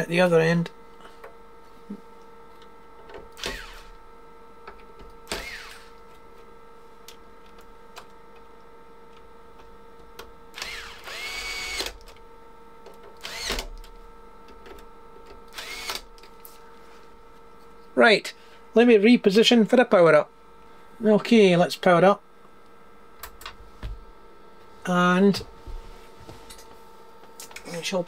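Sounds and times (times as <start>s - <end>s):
power screwdriver whining: 3.4s - 3.9s, 5.3s - 5.9s, 10.6s - 12.0s, 13.2s - 13.7s, 15.5s - 16.0s.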